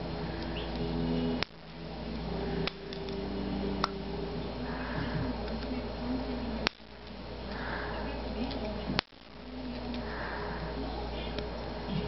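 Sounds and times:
steady background hiss: 0.0s - 12.0s
flashlight parts clicking: 2.6s - 3.2s.

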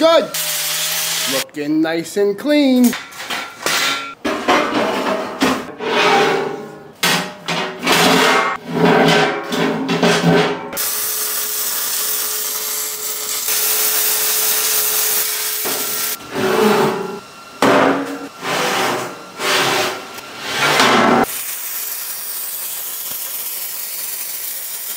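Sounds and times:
welding arc hissing and crackling: 0.0s - 1.4s, 10.8s - 16.2s, 21.2s - 24.9s
steel plates scraped on table: 4.3s - 6.8s, 7.8s - 10.4s, 16.2s - 17.2s, 18.4s - 21.3s.

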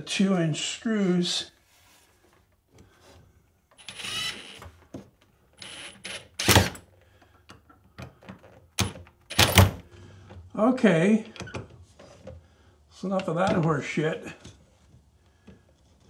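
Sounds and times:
cordless drill driving screws: 3.8s - 4.7s, 5.6s - 6.8s, 8.8s - 9.7s.

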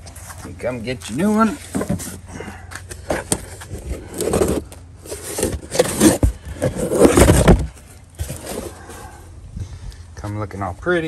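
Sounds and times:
cardboard box scraping and rustling: 1.0s - 9.3s.

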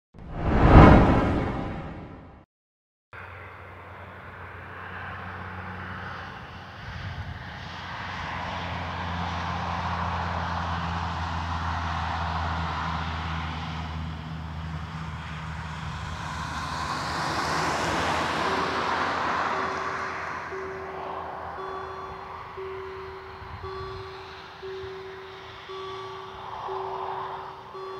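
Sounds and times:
car engine and tyre noise: 3.2s - 27.9s
crossing warning bell: 17.5s - 27.9s.

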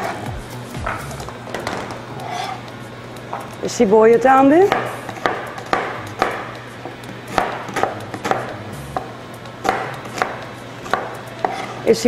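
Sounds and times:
knife chopping on cutting board: 4.6s - 11.8s.

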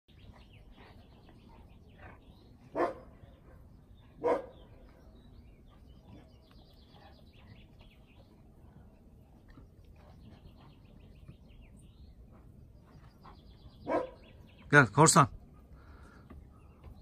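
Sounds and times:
faint bird chirping: 0.1s - 17.0s
dog barking: 2.7s - 3.1s, 4.2s - 4.6s, 13.8s - 14.3s.

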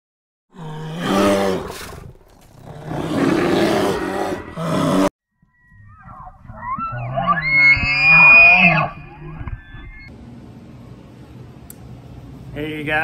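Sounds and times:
deep rough animal roar: 0.6s - 5.1s
elk bugling whistle: 5.7s - 10.1s.

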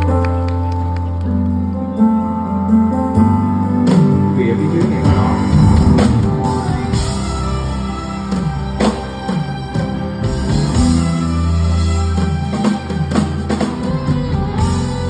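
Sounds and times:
live band playing slow ballad: 0.0s - 15.0s
saxophone melody: 0.6s - 15.0s
sharp drum beats: 4.9s - 9.7s.

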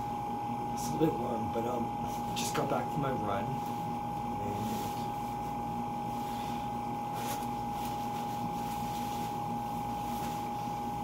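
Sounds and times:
appliance hum with high whine: 0.0s - 11.0s
fabric rustle: 4.5s - 11.0s.

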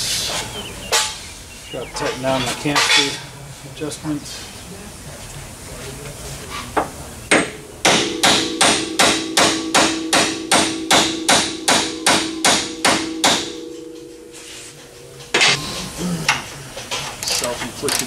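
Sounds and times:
hammer striking metal: 7.3s - 16.5s
metallic ringing: 7.6s - 16.7s.

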